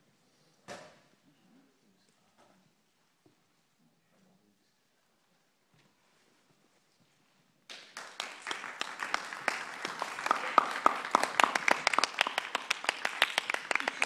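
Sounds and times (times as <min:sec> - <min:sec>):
audience applauding: 0:07.7 - 0:14.0.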